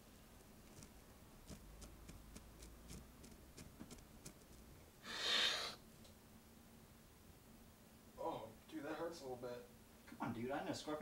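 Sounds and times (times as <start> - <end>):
hard snort through nose: 5.0 - 5.8.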